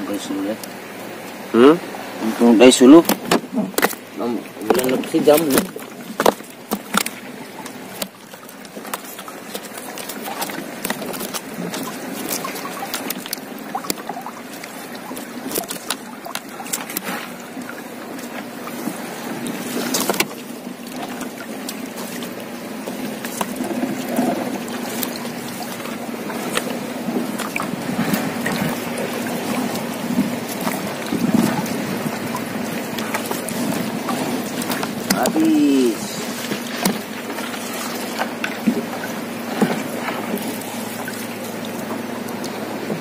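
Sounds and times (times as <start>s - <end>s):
steady low hum: 0.0s - 43.0s
water splashing and dripping: 0.0s - 43.0s
net knocking against hull: 2.9s - 35.5s, 36.2s - 43.0s.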